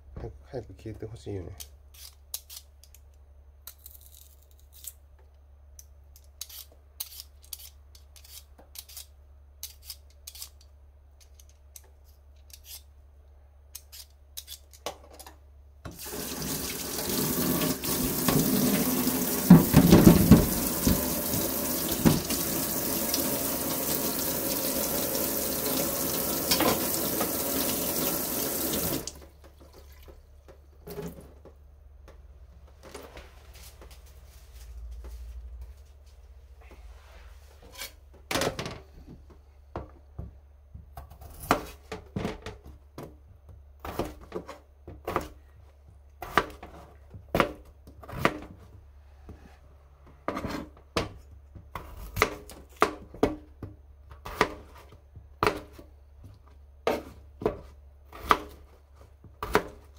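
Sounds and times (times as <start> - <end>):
peeler scraping potato: 1.6 - 2.7, 6.2 - 11.5, 12.4 - 12.9, 13.7 - 14.8
tap water running into sink: 15.9 - 30.1.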